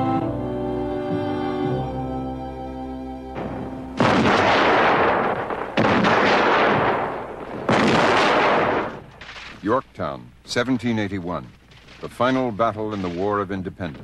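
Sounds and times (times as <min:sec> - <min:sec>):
orchestral music: 0:00.0 - 0:04.1
gunfire blasts: 0:03.4 - 0:09.8, 0:11.7 - 0:14.0.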